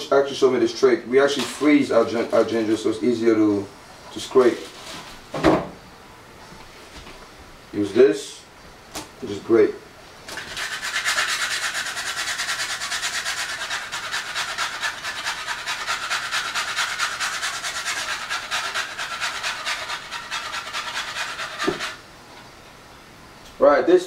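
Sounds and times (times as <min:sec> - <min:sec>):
ginger rasping on metal grater: 0:10.4 - 0:22.0.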